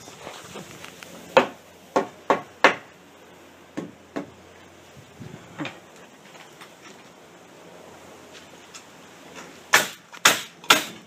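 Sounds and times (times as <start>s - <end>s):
hammer striking wood: 1.4s - 2.9s, 3.8s - 4.3s, 9.7s - 11.0s.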